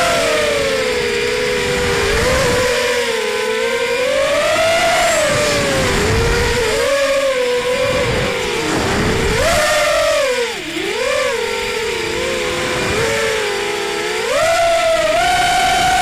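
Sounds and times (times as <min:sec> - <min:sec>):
quadcopter motors whining: 0:00.0 - 0:16.0
wind rushing: 0:04.8 - 0:11.0.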